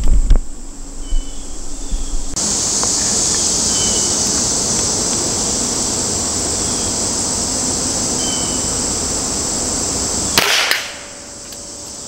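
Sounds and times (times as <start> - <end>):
high insect buzz: 0.0 - 12.0
steady hiss: 0.0 - 12.0
air rifle shot: 10.3 - 11.2.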